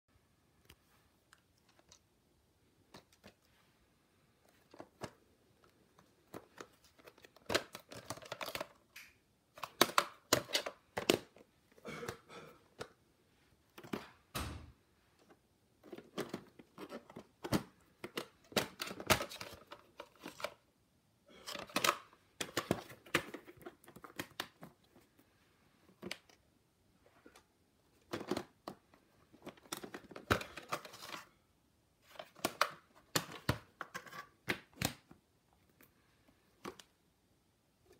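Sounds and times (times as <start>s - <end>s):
plastic cases clicking and rustling: 4.5s - 13.0s, 13.7s - 14.3s, 15.2s - 20.7s, 21.4s - 25.2s, 27.1s - 31.3s, 32.0s - 35.9s.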